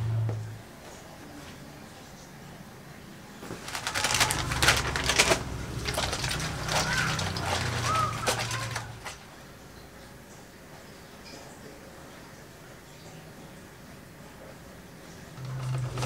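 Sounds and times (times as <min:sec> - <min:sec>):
wet clothes squelching and splashing: 0:03.6 - 0:09.3.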